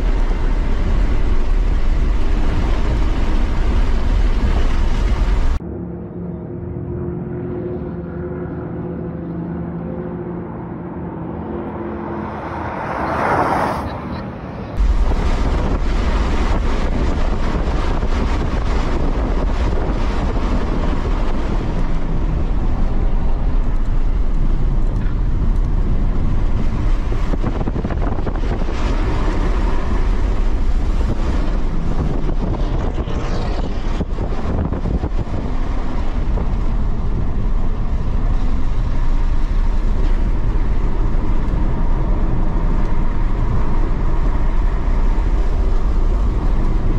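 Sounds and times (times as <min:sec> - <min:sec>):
car interior road rumble: 0:00.0 - 0:05.6, 0:12.3 - 0:46.9
car passing on racetrack: 0:10.4 - 0:14.8.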